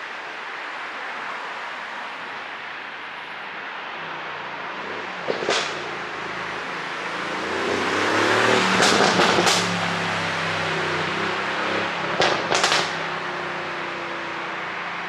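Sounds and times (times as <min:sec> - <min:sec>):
exhaust pops and crackles: 0:05.2 - 0:06.0, 0:08.4 - 0:09.8, 0:12.1 - 0:13.0.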